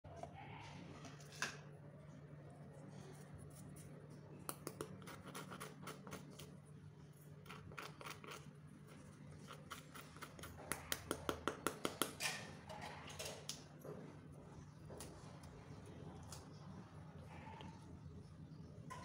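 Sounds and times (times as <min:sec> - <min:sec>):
spoon tapping on crisp crust: 0:03.6 - 0:06.6, 0:09.4 - 0:12.5.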